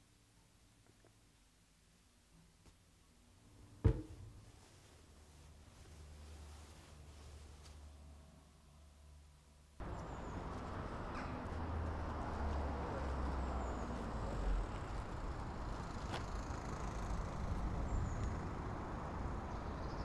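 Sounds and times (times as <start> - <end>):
distant traffic rumble: 9.8 - 20.0.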